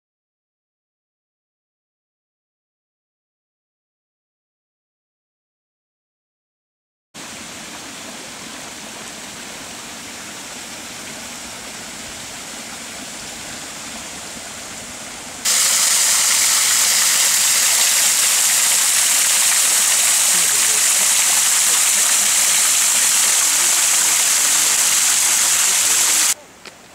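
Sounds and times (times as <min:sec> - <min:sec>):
soft outdoor hiss: 0:07.2 - 0:26.9
waterfall rushing over rocks: 0:15.5 - 0:26.4.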